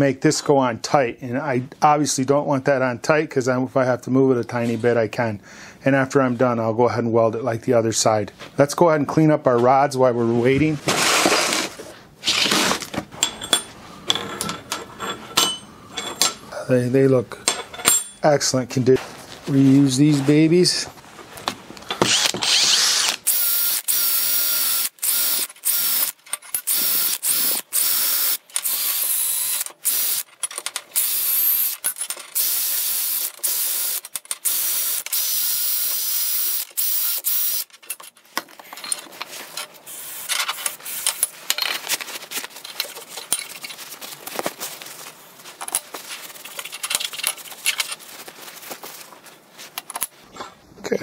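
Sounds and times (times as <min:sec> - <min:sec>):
metal rods clinking and rattling: 0:13.1 - 0:16.4, 0:17.4 - 0:18.3, 0:30.2 - 0:31.0, 0:37.7 - 0:44.0, 0:45.6 - 0:48.2.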